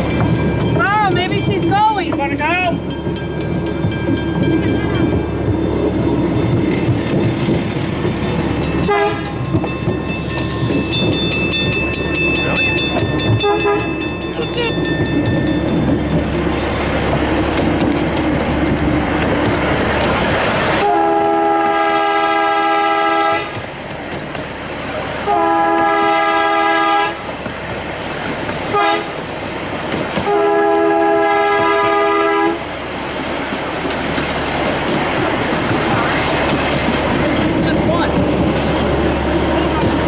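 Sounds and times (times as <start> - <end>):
train cars rumbling on track: 0.0 - 40.0
steam locomotive chime whistle: 8.6 - 15.8, 20.8 - 23.6, 25.3 - 27.2.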